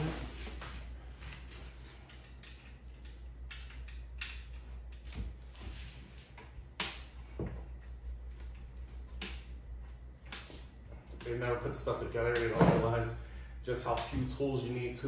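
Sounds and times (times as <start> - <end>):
low steady hum: 0.0 - 15.0
knocks and clatter of panels and tools: 12.1 - 13.1.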